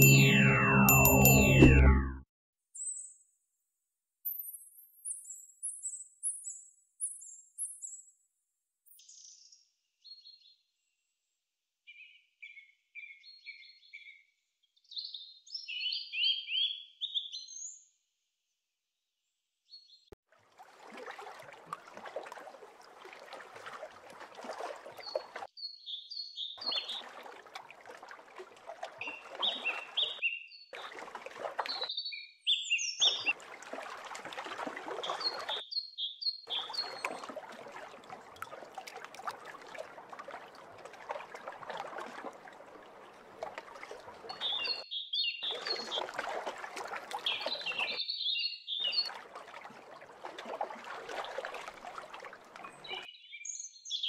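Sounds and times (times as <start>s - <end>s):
steady water wash: 20.4s - 25.5s, 26.6s - 30.2s, 30.8s - 31.9s, 33.1s - 35.6s, 36.5s - 44.8s, 45.4s - 48.0s, 48.8s - 53.1s.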